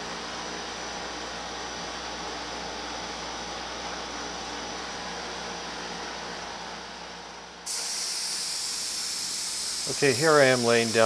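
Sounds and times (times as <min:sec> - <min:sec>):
exhaust fans running: 0:00.0 - 0:11.0
paint spray gun hissing: 0:07.7 - 0:11.0.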